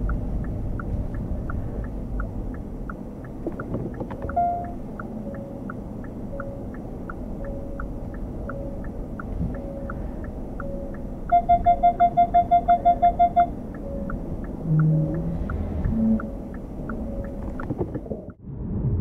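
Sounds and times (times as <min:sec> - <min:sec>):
turn signal ticking: 0:00.0 - 0:18.4
rapid electronic warning beeps: 0:04.2 - 0:06.8, 0:07.4 - 0:17.5.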